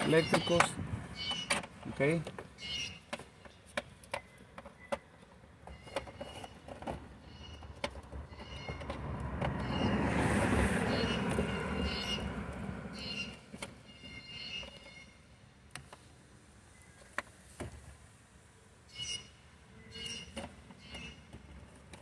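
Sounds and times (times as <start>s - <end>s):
passing vehicle rumble: 7.1s - 14.0s.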